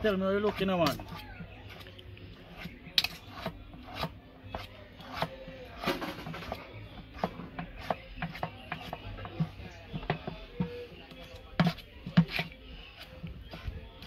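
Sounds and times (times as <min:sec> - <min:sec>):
utensil scraping and tapping bowl: 0:00.0 - 0:14.0.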